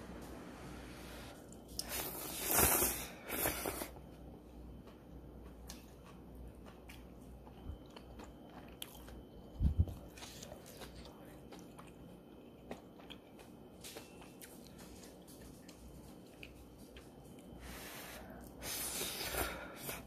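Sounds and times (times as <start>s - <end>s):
slurping noodles: 1.8s - 3.9s
chewing with small clicks: 3.9s - 17.6s.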